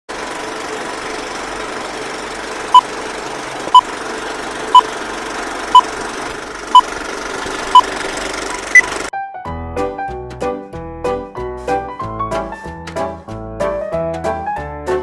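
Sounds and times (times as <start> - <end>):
film projector rattle: 0.1 - 9.1.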